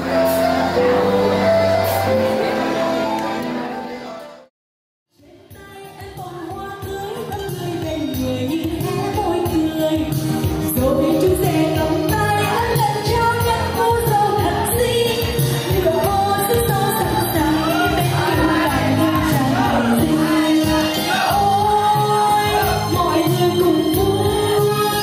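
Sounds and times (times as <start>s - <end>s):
person singing over a steady beat: 5.2s - 25.0s.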